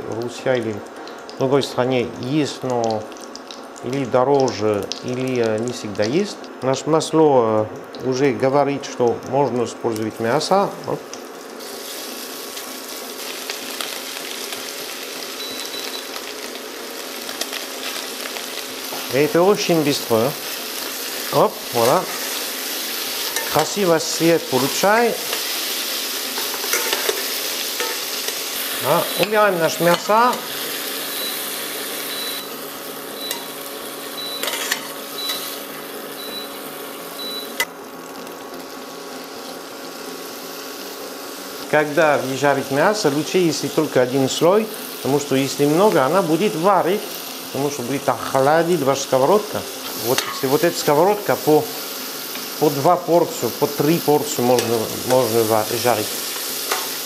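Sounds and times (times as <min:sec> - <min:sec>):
beef sizzling in hot oil: 0:00.0 - 0:57.0
short beep: 0:15.4 - 0:16.1, 0:32.1 - 0:32.5, 0:34.2 - 0:34.5, 0:35.2 - 0:35.5, 0:36.2 - 0:36.6, 0:37.2 - 0:37.6
spatula scraping a pan: 0:34.4 - 0:35.5.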